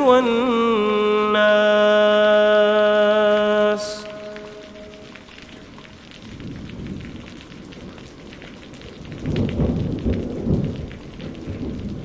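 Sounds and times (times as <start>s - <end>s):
steady rain: 0.0s - 12.0s
thunder rumbling: 3.9s - 12.0s.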